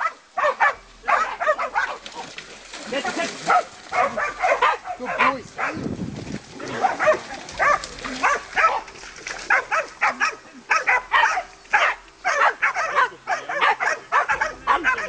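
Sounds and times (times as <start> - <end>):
dogs barking rapidly: 0.0 - 2.4, 3.4 - 5.9, 6.6 - 15.0.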